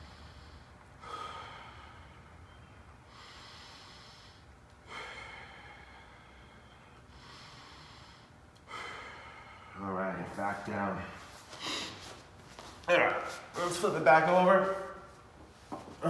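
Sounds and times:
man breathing deeply: 0.0 - 10.4, 11.2 - 12.2.

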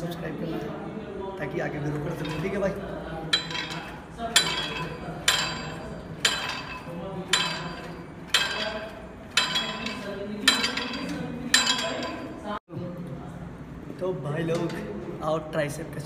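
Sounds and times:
gym cable machine clanking: 2.0 - 12.6.

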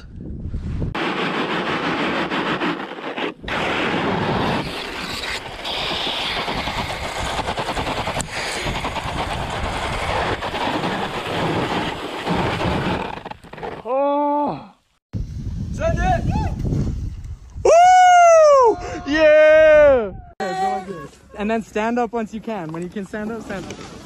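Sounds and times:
snowboard rushing through powder snow: 0.9 - 13.8
snow spray crackling: 1.0 - 13.8.

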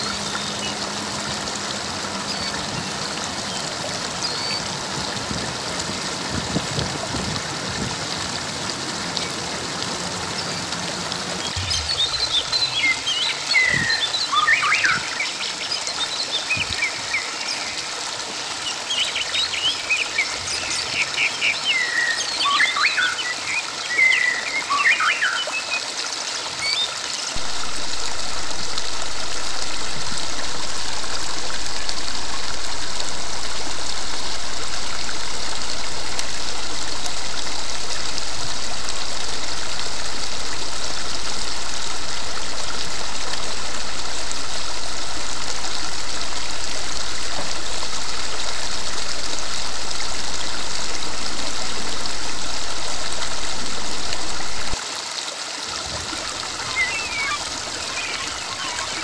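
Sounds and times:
birds chirping: 0.0 - 1.1, 9.1 - 18.0, 18.6 - 25.8, 56.2 - 59.0
river water rushing over rocks: 0.0 - 59.0.

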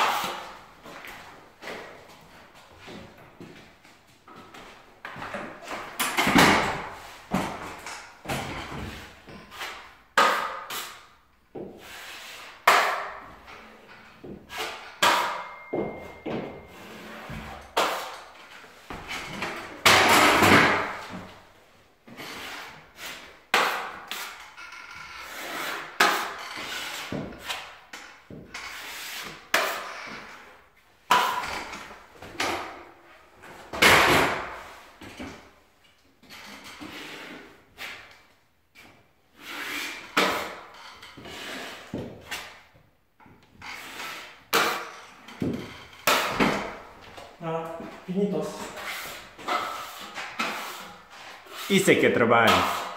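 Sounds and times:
tools clattering and scraping: 12.7 - 21.3, 24.2 - 28.8, 43.5 - 47.2.

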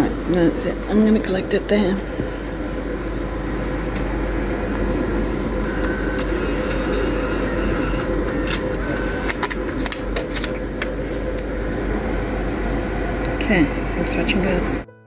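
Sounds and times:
machine hum: 0.0 - 15.0
ticket clicking and rustling: 9.2 - 11.4.

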